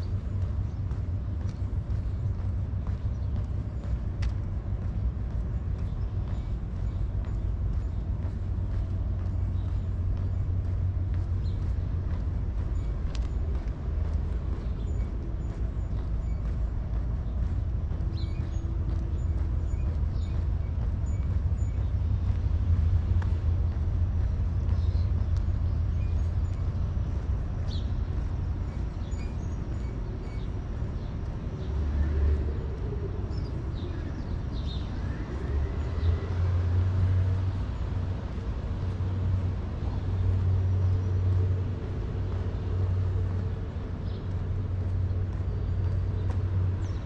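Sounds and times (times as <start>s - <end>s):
low street rumble: 0.0s - 47.0s.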